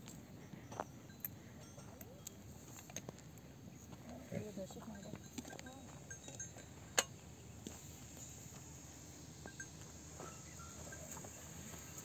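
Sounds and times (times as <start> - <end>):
faint steady high hiss: 4.4 - 12.0
faint high chirps: 5.2 - 12.0.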